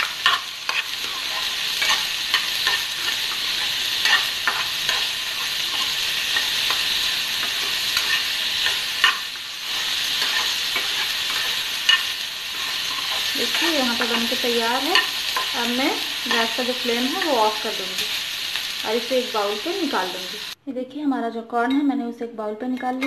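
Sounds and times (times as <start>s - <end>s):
metal spoon scraping a pan: 0.0s - 18.1s
corn sizzling in hot oil: 0.0s - 20.6s.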